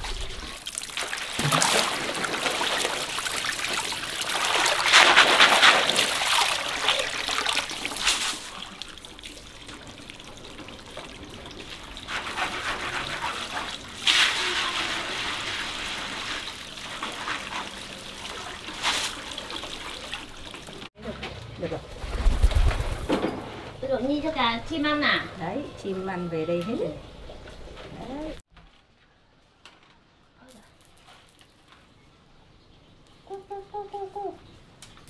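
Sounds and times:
water trickling and splashing: 0.0s - 21.7s.

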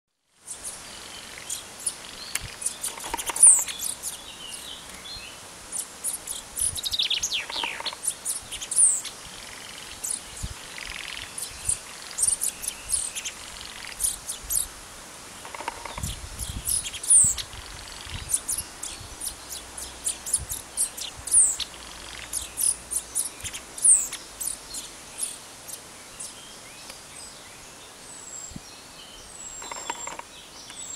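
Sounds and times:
chaffinches chirping and whistling: 0.4s - 14.7s, 15.4s - 27.4s.

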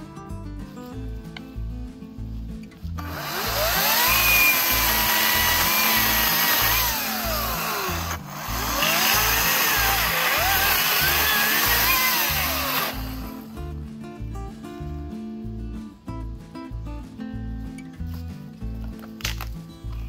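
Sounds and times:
background music with beat: 0.0s - 20.0s
chainsaw cutting wood: 3.0s - 13.5s.

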